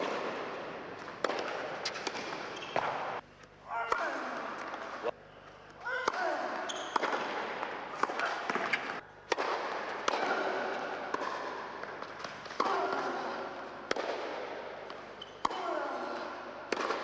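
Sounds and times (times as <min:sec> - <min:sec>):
tennis ball pops echoing: 0:06.0 - 0:15.6.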